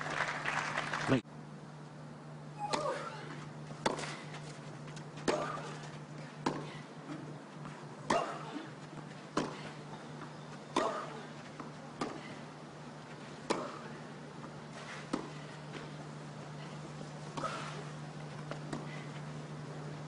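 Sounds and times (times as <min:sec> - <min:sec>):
steady low hum: 0:00.0 - 0:20.0
racquets striking tennis ball: 0:03.7 - 0:07.3, 0:13.4 - 0:14.0.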